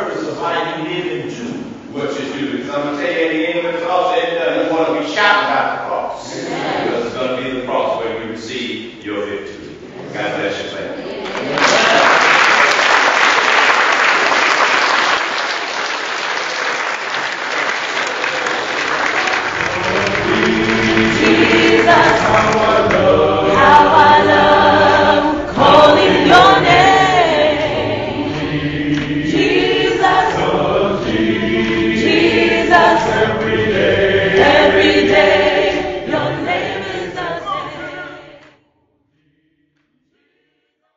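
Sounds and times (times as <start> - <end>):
choir singing a cappella: 4.3 - 8.1, 19.3 - 40.8.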